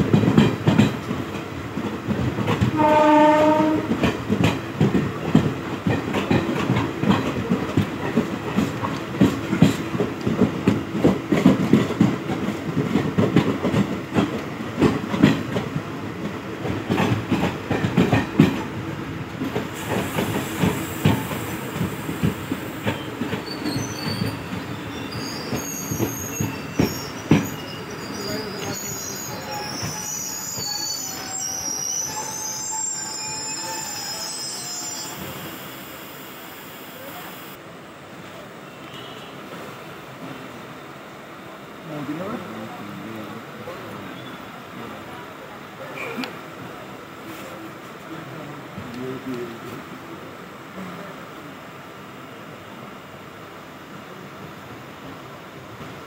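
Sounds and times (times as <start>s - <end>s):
train wheels clattering: 0.0s - 15.8s, 16.6s - 18.7s, 19.4s - 30.8s
train horn blast: 2.7s - 4.0s
wheel squeal: 22.9s - 37.5s.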